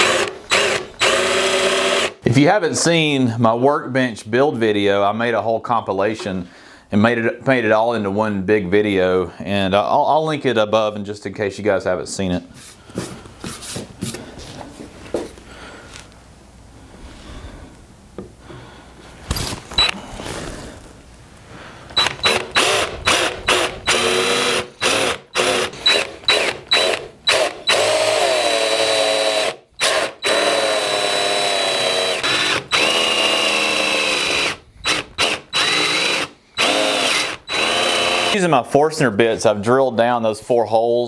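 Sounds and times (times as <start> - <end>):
cordless drill boring into wood: 0.0 - 2.2, 21.9 - 38.5.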